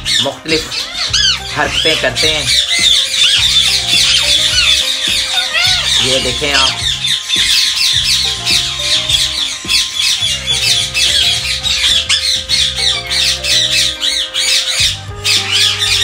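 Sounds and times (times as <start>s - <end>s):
background music with low bass: 0.0s - 16.0s
parakeets screeching and chattering: 0.0s - 16.0s.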